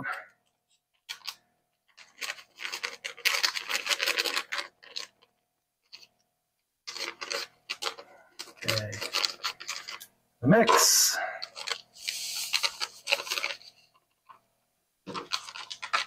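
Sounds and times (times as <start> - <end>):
paper packet crinkling: 0.9 - 6.1, 6.9 - 10.0, 10.7 - 14.4, 15.1 - 16.0
scissors cutting paper: 6.9 - 10.0, 10.8 - 13.7, 15.1 - 16.0.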